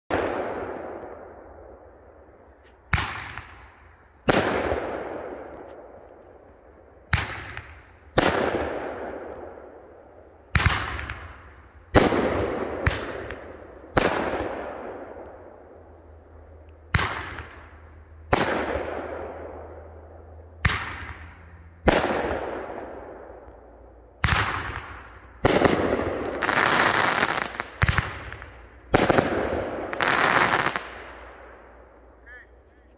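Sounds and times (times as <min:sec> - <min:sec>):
firework crackle: 0:20.6 - 0:31.5.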